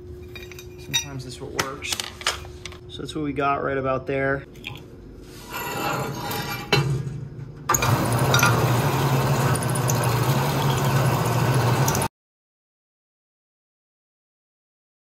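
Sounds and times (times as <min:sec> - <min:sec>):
bandsaw motor hum: 0:07.7 - 0:12.1.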